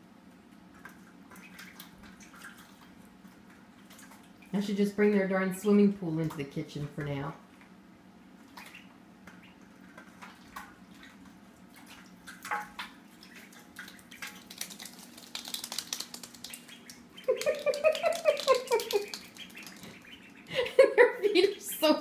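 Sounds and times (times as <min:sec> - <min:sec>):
ducklings splashing in water: 0:00.7 - 0:07.6, 0:08.4 - 0:22.0
light clicks on wet floor: 0:13.8 - 0:20.0.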